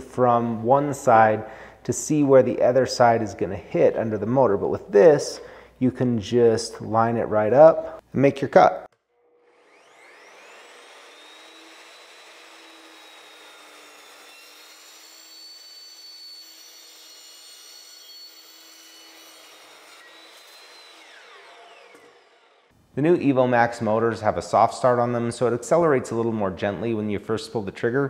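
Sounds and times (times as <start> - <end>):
chop saw whine: 9.0 - 22.7
saw cutting steel tubing: 9.2 - 22.7.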